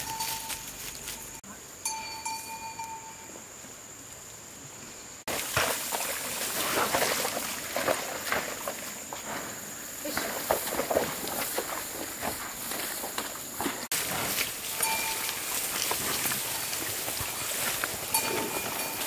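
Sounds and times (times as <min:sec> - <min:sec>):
footsteps through wet soil: 0:00.0 - 0:01.4, 0:05.3 - 0:19.0
ringing tone: 0:00.0 - 0:03.3, 0:14.8 - 0:15.5.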